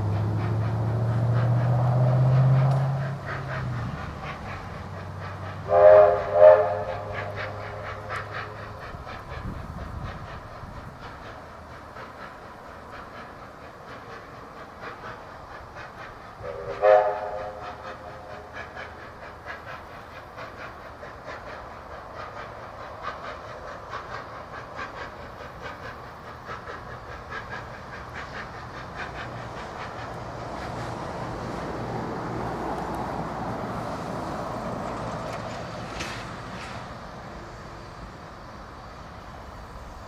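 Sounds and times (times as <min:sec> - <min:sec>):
steam locomotive chuffing: 0:00.0 - 0:40.0
steam whistle blast: 0:05.7 - 0:07.8, 0:16.5 - 0:18.1.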